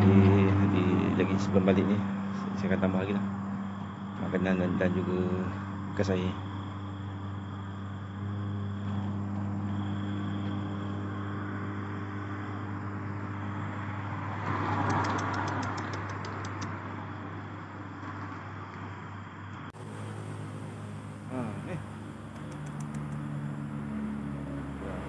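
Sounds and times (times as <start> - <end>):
engine idling hum: 0.0 - 14.2, 19.7 - 25.0.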